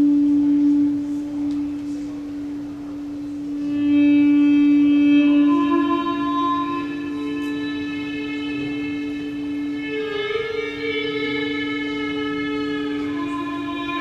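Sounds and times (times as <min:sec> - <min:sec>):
higher ringing tones: 0:00.0 - 0:14.0
low drone note: 0:00.0 - 0:14.0.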